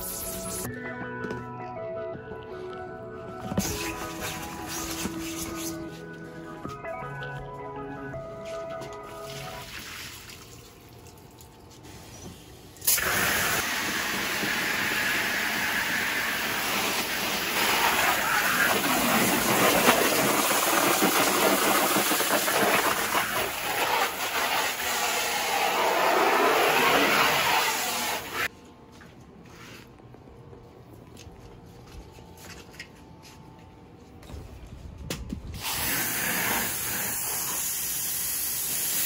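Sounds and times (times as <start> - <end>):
hose nozzle spraying water: 12.8 - 28.5.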